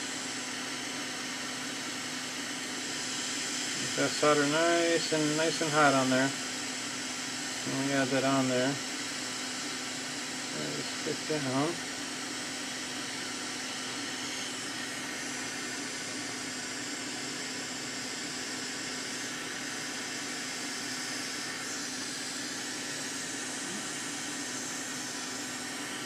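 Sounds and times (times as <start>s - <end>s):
hot-air station blowing: 0.0s - 26.0s.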